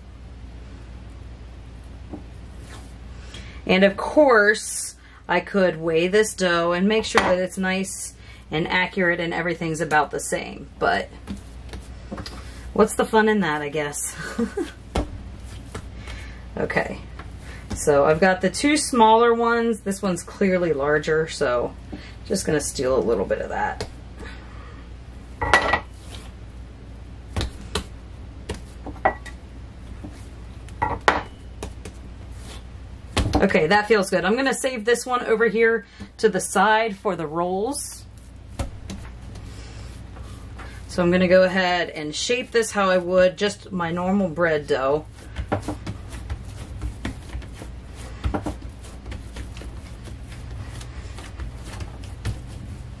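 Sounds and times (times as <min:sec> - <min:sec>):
hands patting bread dough: 0:11.2 - 0:18.3, 0:27.2 - 0:29.2, 0:29.8 - 0:34.0, 0:37.8 - 0:43.3, 0:43.9 - 0:53.0.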